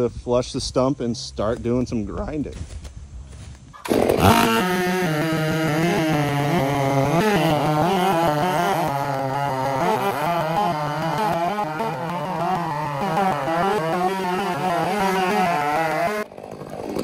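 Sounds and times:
chainsaw cutting: 3.8 - 17.0.

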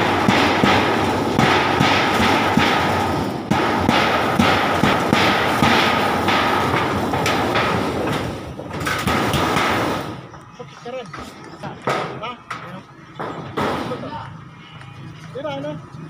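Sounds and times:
hammer on metal roofing: 0.0 - 10.2, 11.8 - 12.4, 13.2 - 14.1.

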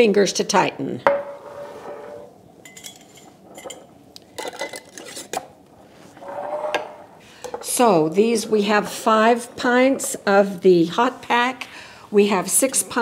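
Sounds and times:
metal lids scraping on glass jars: 1.4 - 5.5.

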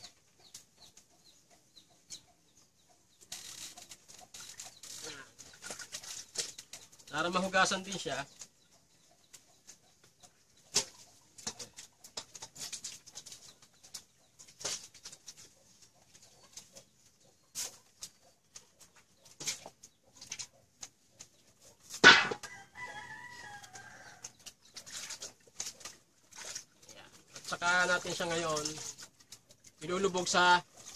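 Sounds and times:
water splashing and dripping: 3.2 - 8.6, 18.0 - 30.9.

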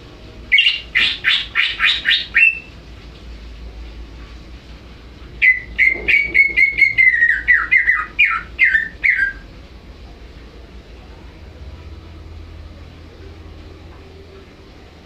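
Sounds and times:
bird whistling song: 0.5 - 2.8, 5.4 - 9.4.

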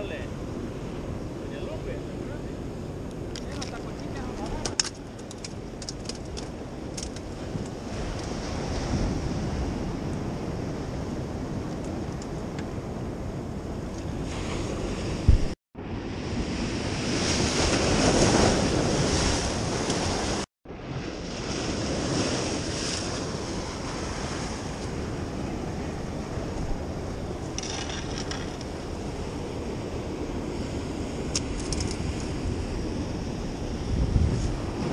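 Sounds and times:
wind buffeting microphone: 0.0 - 34.9
surf washing over rocks: 16.4 - 34.9.

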